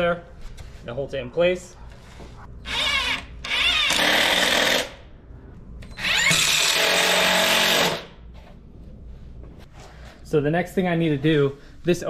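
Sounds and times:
cordless drill driving screws: 0:02.7 - 0:04.9, 0:06.0 - 0:08.0.

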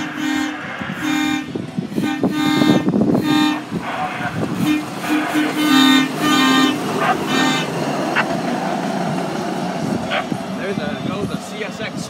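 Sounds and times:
truck horn short honks: 0:00.0 - 0:03.6, 0:04.6 - 0:07.8.

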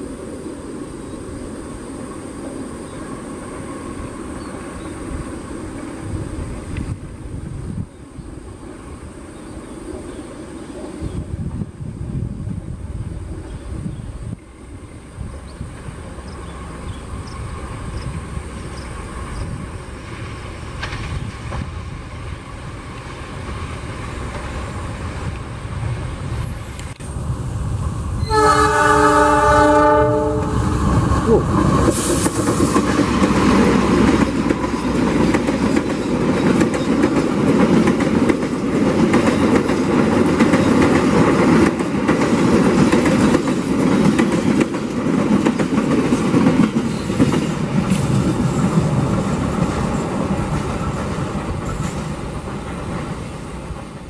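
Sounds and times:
train wheels rumbling on rails: 0:00.0 - 0:54.0
locomotive horn blast: 0:28.2 - 0:31.4.

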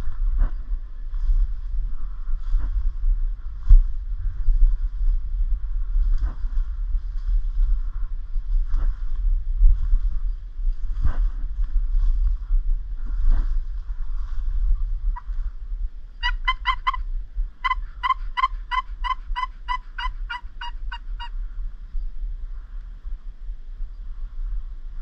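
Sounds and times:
wind on microphone: 0:00.0 - 0:25.0
turkey yelping: 0:16.2 - 0:21.3.

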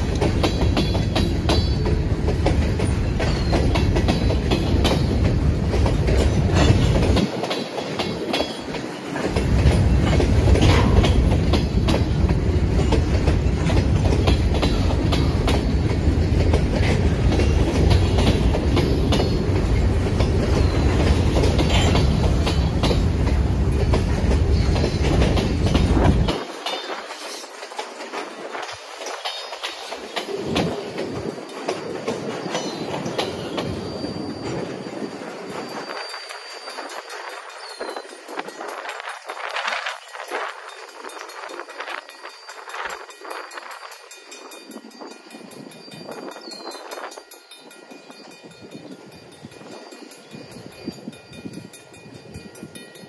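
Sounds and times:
train wheels clacking on rail joints: 0:00.0 - 0:53.0
wind rumble on microphone: 0:21.0 - 0:26.4.

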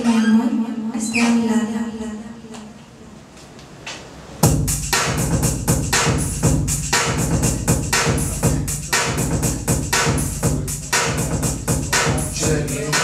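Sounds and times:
music with fast drum beat: 0:04.4 - 0:13.0.

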